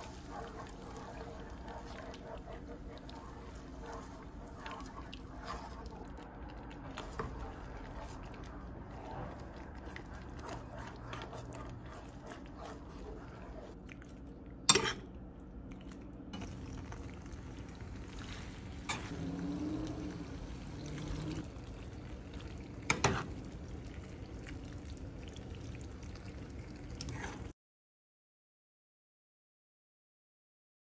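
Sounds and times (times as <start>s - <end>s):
wooden spoon stirring sauce: 0.0s - 14.8s.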